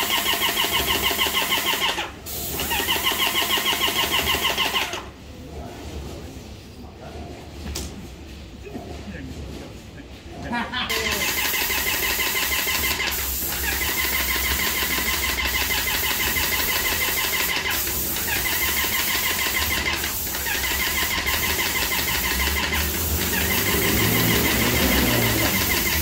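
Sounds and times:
paint sprayer pump motor: 0.0s - 5.0s, 11.0s - 26.0s
spray tip hissing: 11.0s - 26.0s.

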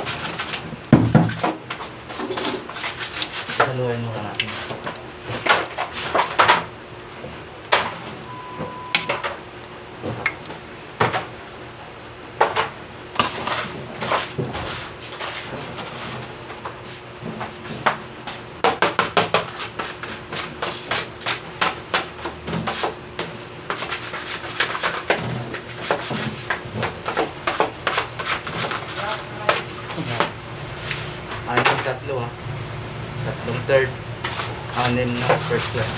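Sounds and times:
faint steady hum: 0.0s - 18.4s.

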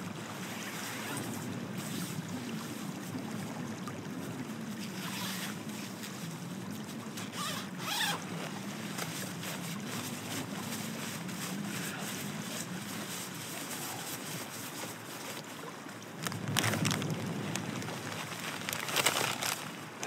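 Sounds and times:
wind rushing over microphone: 16.2s - 18.9s.

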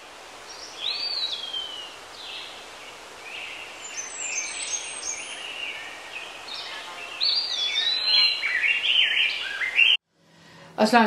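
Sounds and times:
steady hiss: 0.0s - 10.8s
bird-like whistles and chirps: 3.3s - 10.0s.

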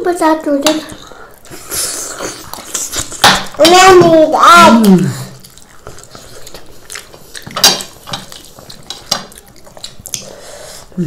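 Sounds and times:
biting and chewing: 0.8s - 10.9s
cutlery clinking on plates: 7.4s - 9.3s.

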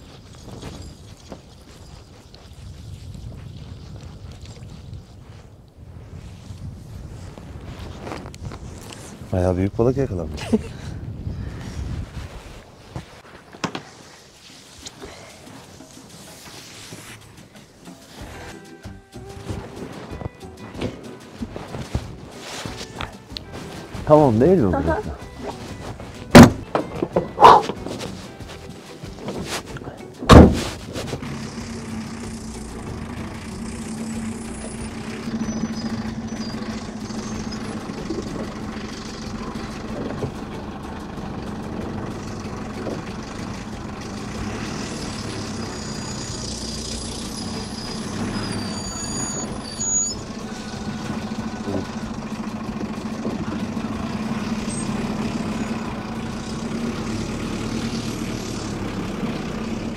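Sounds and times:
diesel truck engine running: 14.0s - 59.9s
loud thump: 26.3s - 26.6s, 30.3s - 31.0s.

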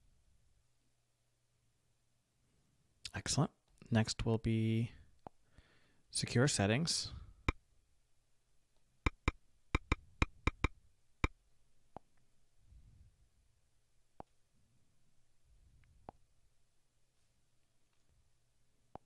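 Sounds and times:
taps on a touchscreen keyboard: 9.1s - 10.8s.

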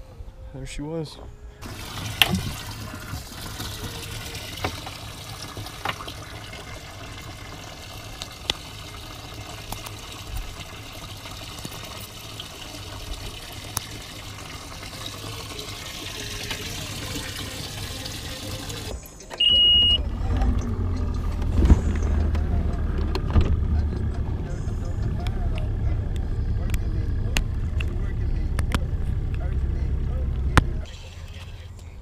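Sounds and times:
running trickling water: 1.6s - 22.8s.

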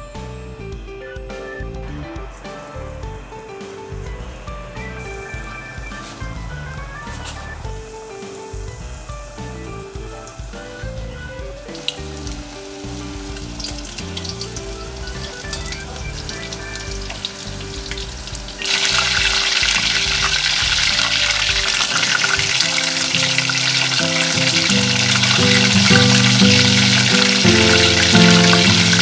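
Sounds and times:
soft background music: 0.0s - 29.0s
chicken deep-frying in oil: 8.5s - 29.0s
oil popping: 11.4s - 29.0s.

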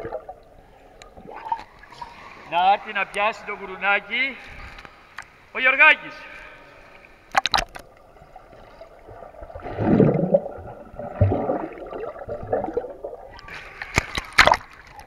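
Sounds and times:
underwater gurgling and bubbles: 0.0s - 2.5s, 6.9s - 15.0s
water splashing: 7.0s - 15.0s.

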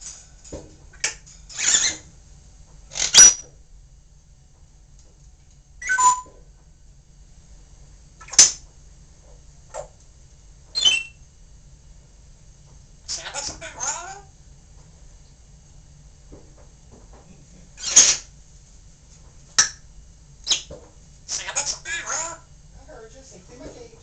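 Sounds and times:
parrot clicks and squawks: 2.9s - 3.5s
parrot whistled notes: 5.8s - 6.3s, 10.8s - 11.2s.

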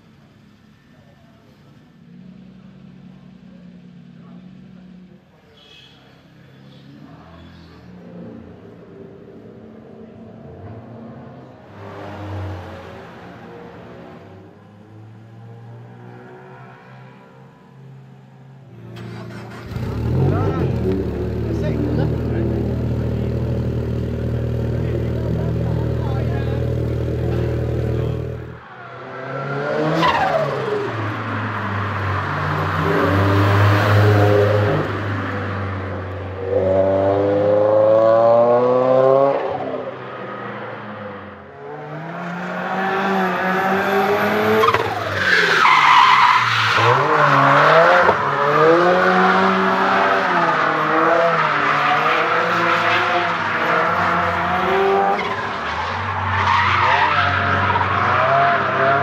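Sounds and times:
car engine revving: 18.9s - 59.0s.

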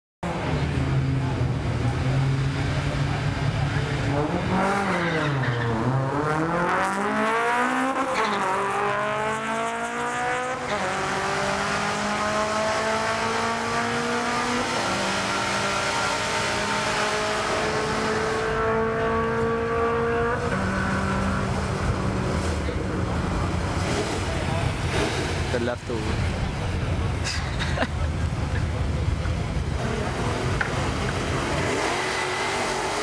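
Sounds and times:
drag car engine revving: 0.3s - 33.0s
tyres spinning and squealing: 4.5s - 6.0s.

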